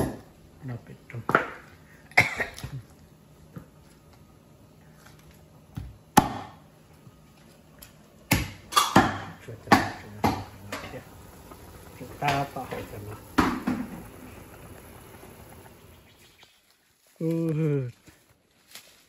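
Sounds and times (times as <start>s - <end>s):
cleaver chopping meat on wood: 5.8s - 6.6s.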